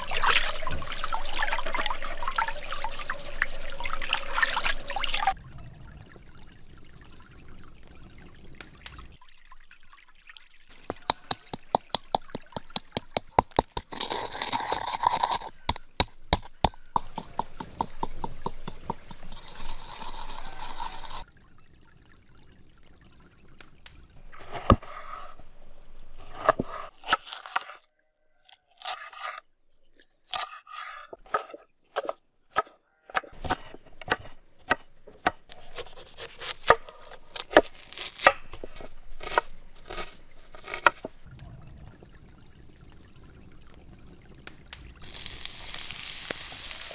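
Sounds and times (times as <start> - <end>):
pestle grinding in wooden mortar: 10.9 - 21.2.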